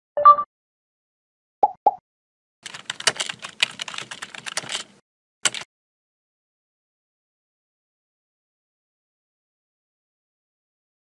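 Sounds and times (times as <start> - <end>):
keyboard typing clicks: 2.6 - 5.7.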